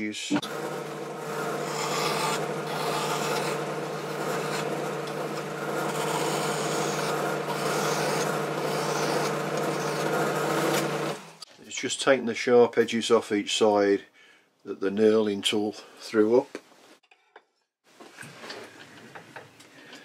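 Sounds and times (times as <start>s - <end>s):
lathe humming: 0.4s - 11.4s
hand file scraping metal: 1.4s - 11.0s.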